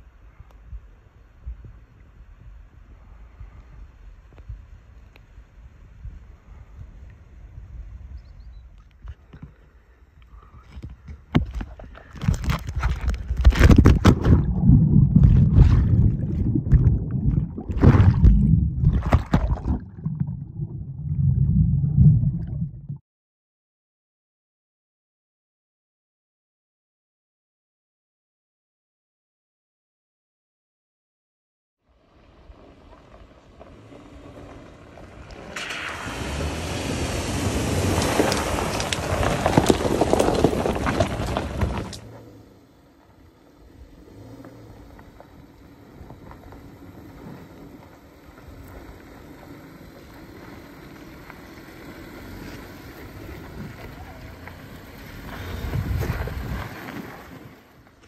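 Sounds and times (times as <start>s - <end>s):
wind rumble on microphone: 0.0s - 23.0s, 43.6s - 58.0s
water splashing and sloshing: 11.5s - 23.0s, 35.3s - 42.0s
low engine rumble: 31.9s - 58.0s
tyres crunching on gravel: 32.2s - 43.2s, 44.0s - 58.0s
water splashing and spraying: 35.4s - 40.2s.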